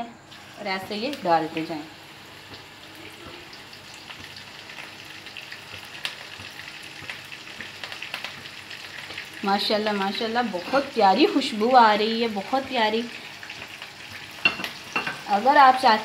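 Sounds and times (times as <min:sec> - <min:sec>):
meatballs frying in hot oil: 0:00.2 - 0:16.0.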